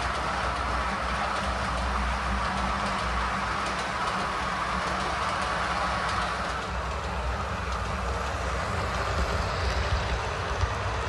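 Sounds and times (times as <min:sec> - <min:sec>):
faint clicking of wheels: 0:00.0 - 0:11.0
model train wheels rumbling: 0:00.0 - 0:11.0.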